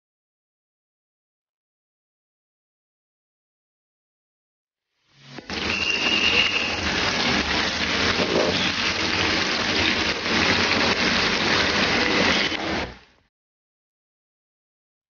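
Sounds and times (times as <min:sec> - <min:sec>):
onions sizzling in oil: 0:05.1 - 0:13.2.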